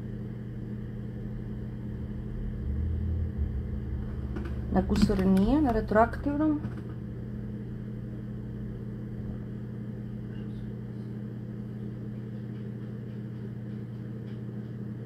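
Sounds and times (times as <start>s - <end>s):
steady low hum: 0.0s - 15.0s
higher steady tone: 1.2s - 6.4s.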